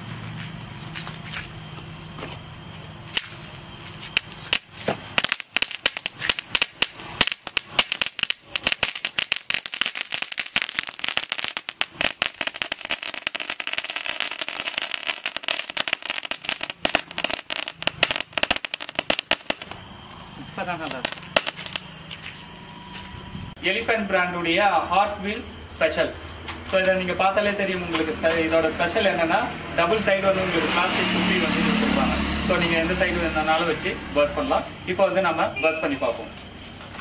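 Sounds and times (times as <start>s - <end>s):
ground firework crackling: 2.3s - 22.3s.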